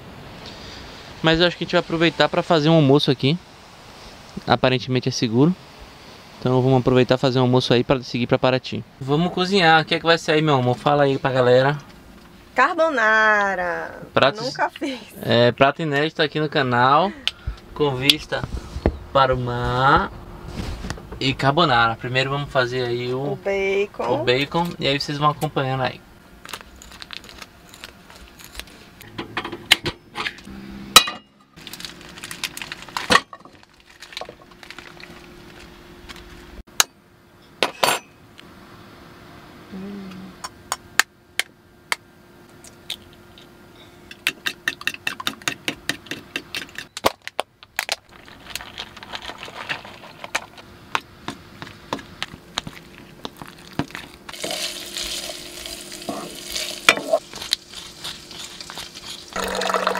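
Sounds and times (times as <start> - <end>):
utensils clinking against dishes: 37.6 - 38.2
wooden spoon stirring: 52.6 - 59.9
bacon sizzling in a pan: 54.3 - 59.9
fork beating eggs: 56.1 - 59.9.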